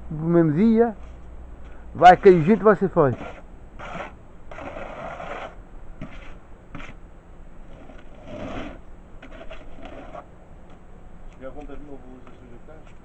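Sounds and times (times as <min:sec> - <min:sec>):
trowel scraping wet mortar: 0:02.0 - 0:07.0, 0:07.7 - 0:10.3.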